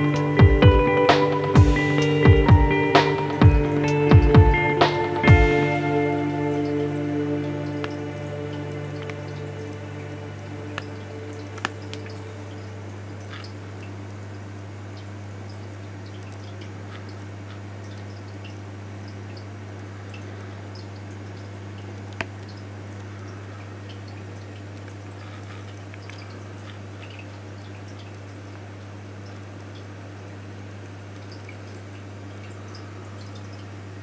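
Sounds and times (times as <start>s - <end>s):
aquarium low hum: 0.0s - 34.0s
water trickling and dripping: 0.0s - 34.0s
small ticks and pops: 10.7s - 12.3s.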